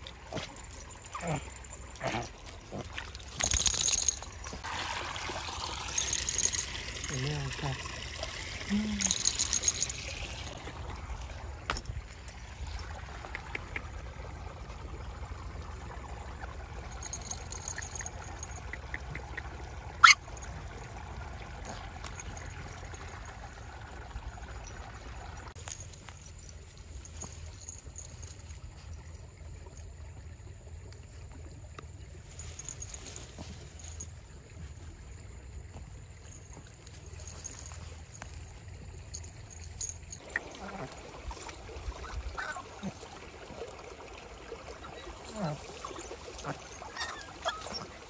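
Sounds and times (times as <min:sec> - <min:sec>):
stream trickling over rocks: 0:00.0 - 0:48.0
puppy shaking off water: 0:02.0 - 0:10.6.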